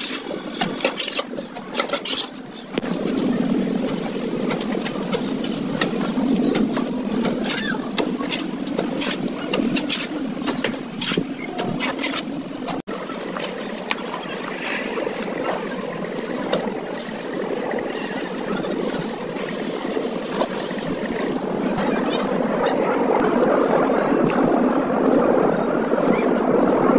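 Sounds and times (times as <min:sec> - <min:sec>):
trowel scraping mortar pan: 0:00.0 - 0:02.4, 0:03.0 - 0:16.7
steady engine-like drone: 0:00.0 - 0:26.9.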